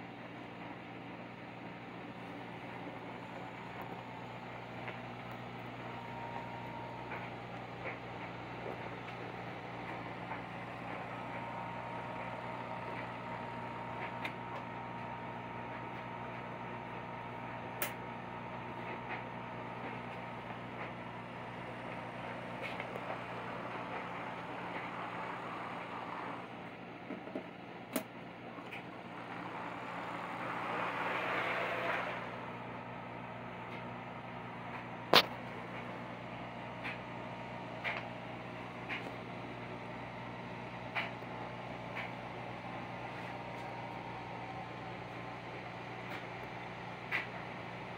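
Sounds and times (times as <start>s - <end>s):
model train motor hum: 21.8s - 26.5s, 28.7s - 32.6s
wheels rolling on rails: 28.7s - 32.6s
model train motor whir: 29.1s - 32.6s.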